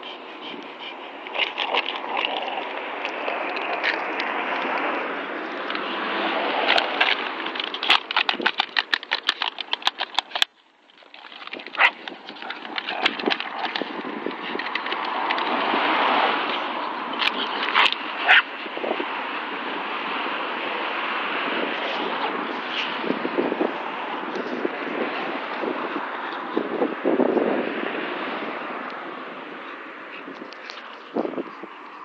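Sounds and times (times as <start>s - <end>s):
plastic bottle crackling: 6.6s - 15.4s.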